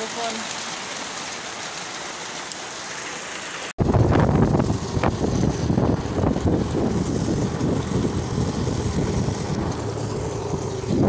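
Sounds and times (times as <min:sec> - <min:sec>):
steady rain hiss: 0:00.0 - 0:11.0
wind buffeting microphone: 0:03.8 - 0:11.0
motor scooter riding: 0:04.4 - 0:11.0.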